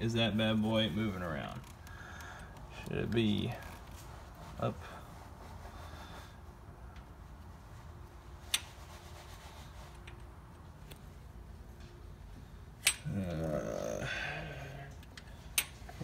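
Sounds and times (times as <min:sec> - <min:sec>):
metallic clicks of engine parts: 0:12.8 - 0:13.1, 0:15.0 - 0:15.9
person murmuring: 0:13.1 - 0:14.9.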